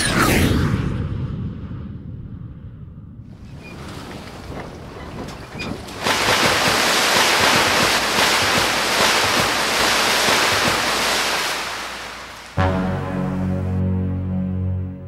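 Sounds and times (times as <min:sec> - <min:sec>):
sea water rushing and surging: 0:03.3 - 0:12.7.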